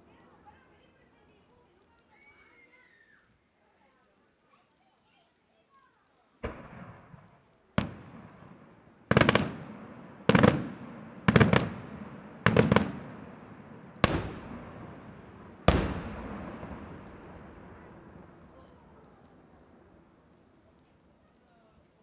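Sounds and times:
firework shells bursting: 5.4s - 22.0s.

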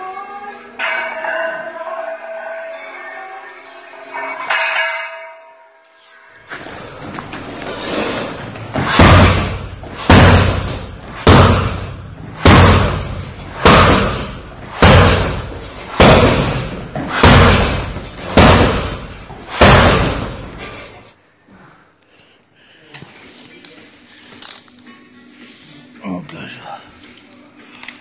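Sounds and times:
kicks thudding on kick bag: 8.7s - 20.6s.

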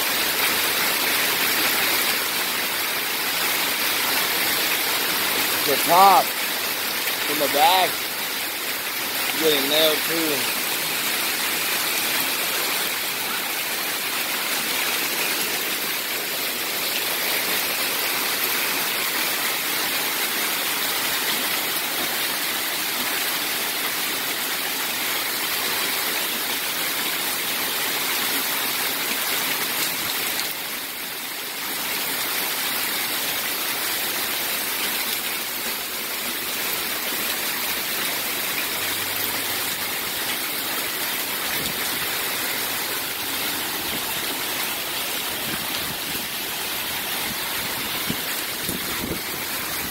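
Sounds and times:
hail and rain pelting cars: 3.1s - 25.5s.

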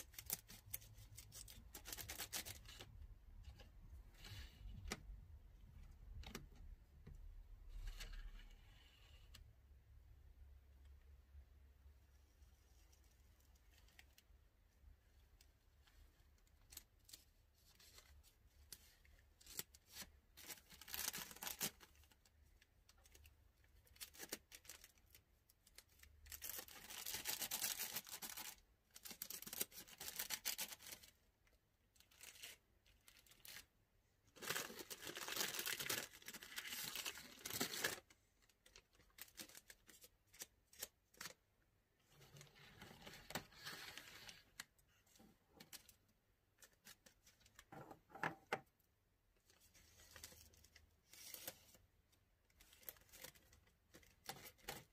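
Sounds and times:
plastic bag crinkling: 34.4s - 40.9s.

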